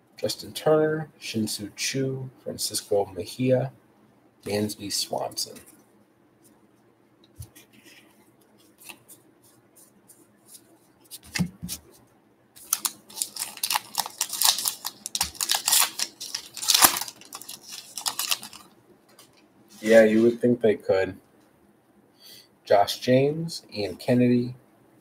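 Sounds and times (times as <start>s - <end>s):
wrapper crinkling and tearing: 12.6s - 18.7s.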